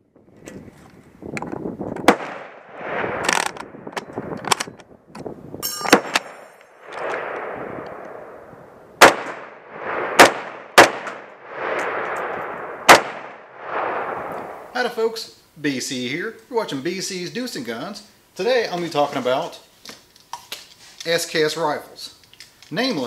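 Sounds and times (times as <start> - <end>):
rifle shots echoing: 2.0 - 4.6, 5.8 - 14.7
rifle loading clicks: 3.2 - 5.3, 22.2 - 22.8.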